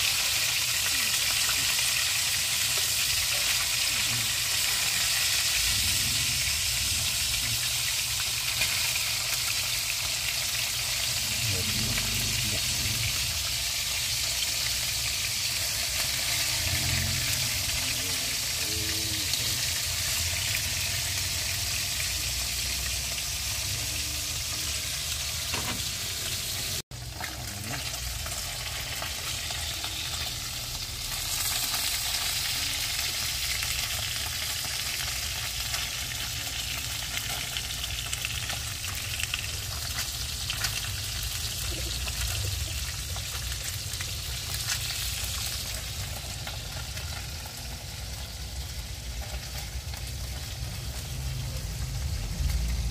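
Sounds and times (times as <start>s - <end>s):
fish sizzling in hot oil: 0.0s - 52.9s.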